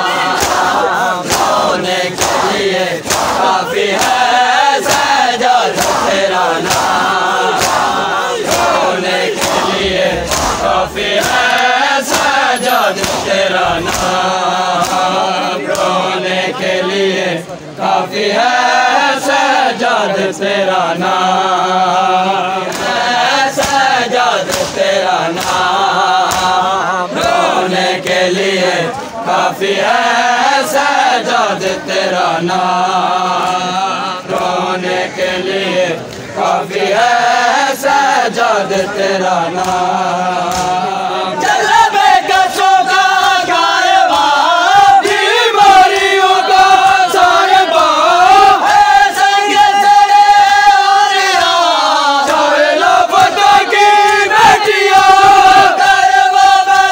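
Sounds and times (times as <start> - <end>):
men chanting in unison: 0.0 - 56.9
hands slapping on chests: 0.3 - 12.3, 13.0 - 14.2, 14.8 - 15.1, 23.6 - 26.6, 39.6 - 39.9, 40.5 - 40.8.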